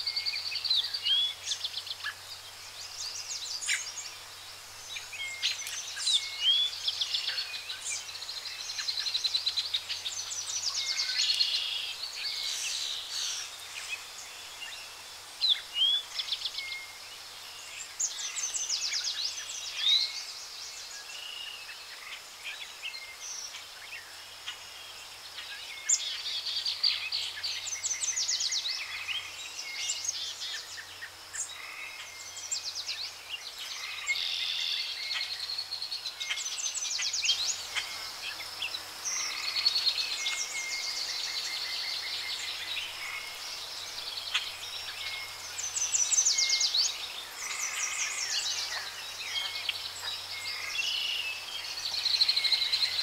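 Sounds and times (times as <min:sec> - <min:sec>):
birds chirping and trilling: 0:00.0 - 0:53.0.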